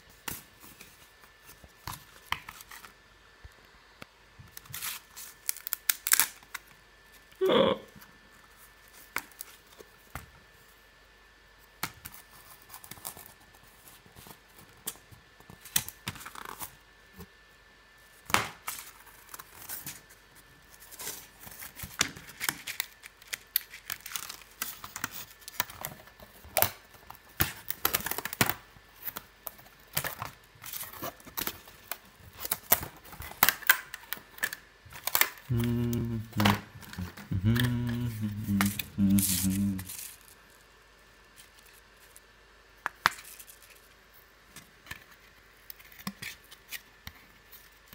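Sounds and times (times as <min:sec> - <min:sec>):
card tearing and crinkling: 0:04.5 - 0:06.8, 0:20.7 - 0:40.3
cardboard pieces clicking and snapping: 0:04.6 - 0:06.7, 0:21.5 - 0:38.0
low pitched hum: 0:35.5 - 0:40.1.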